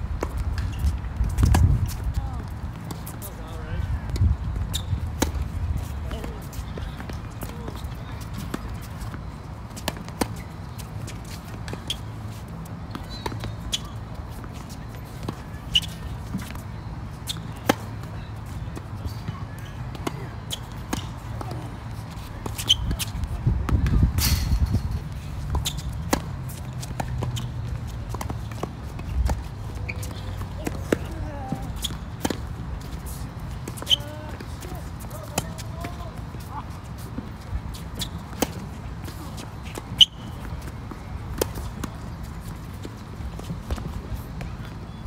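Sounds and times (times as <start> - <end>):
tennis ball bouncing: 19.9 - 24.0, 25.5 - 34.6, 37.0 - 44.8.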